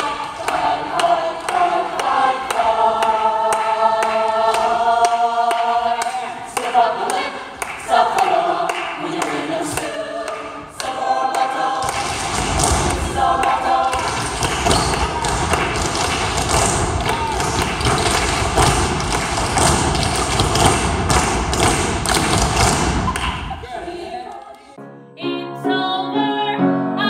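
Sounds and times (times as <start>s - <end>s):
feet stamping on stage floor: 14.0s - 23.2s.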